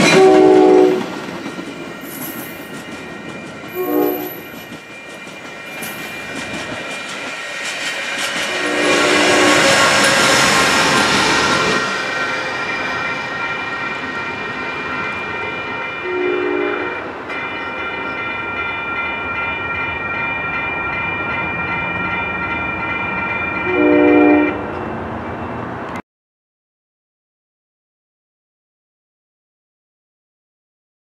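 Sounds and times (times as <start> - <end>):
distant train horn: 0.0 - 1.1, 3.7 - 4.6, 8.4 - 11.0, 15.7 - 17.7, 23.6 - 25.7
crossing bell ringing: 0.0 - 7.5, 8.5 - 25.9.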